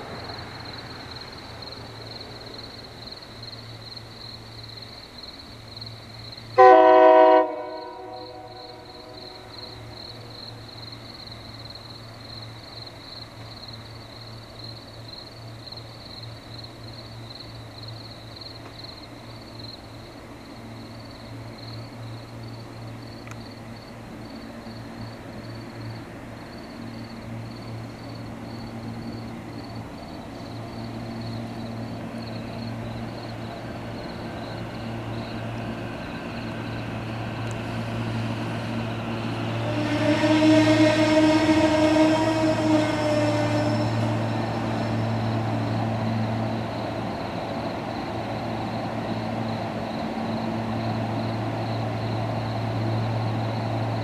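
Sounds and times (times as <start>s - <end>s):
train horn blast: 6.6s - 9.8s, 38.7s - 46.3s.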